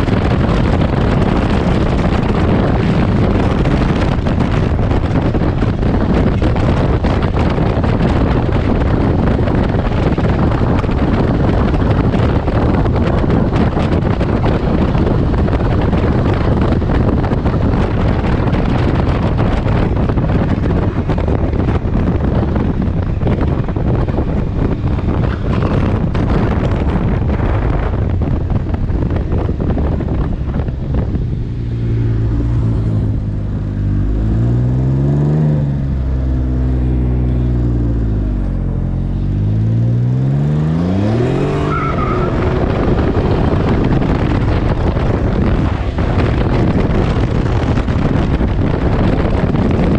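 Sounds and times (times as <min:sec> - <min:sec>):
wind rushing over microphone: 0:00.0 - 0:49.9
engine revving: 0:30.9 - 0:49.9.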